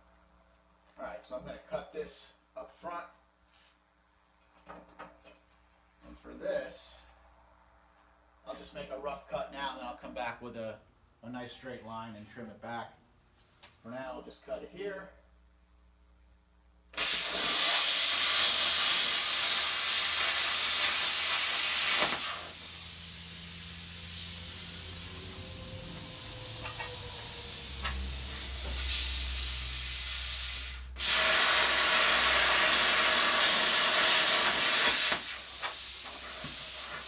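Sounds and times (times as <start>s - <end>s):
plasma cutter hissing: 17.0s - 37.0s.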